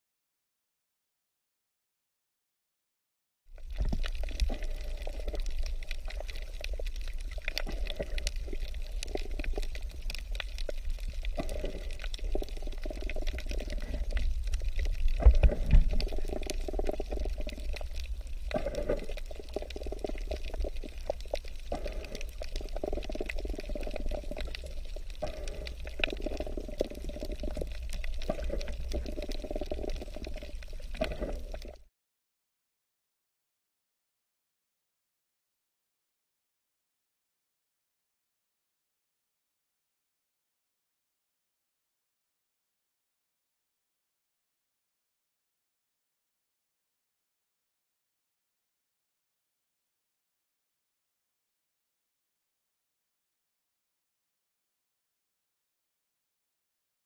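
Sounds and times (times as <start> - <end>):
muffled underwater water movement: 3.5 - 31.9
crackling clicks underwater: 3.6 - 31.9
low underwater rumble: 3.6 - 31.9.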